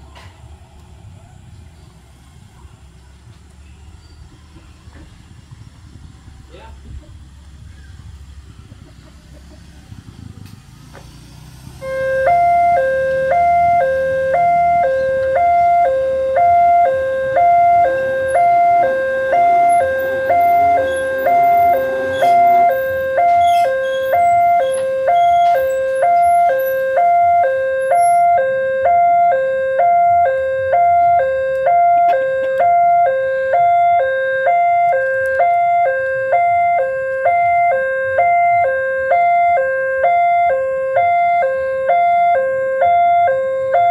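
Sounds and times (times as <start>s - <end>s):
two-tone level crossing alarm: 11.8s - 43.9s.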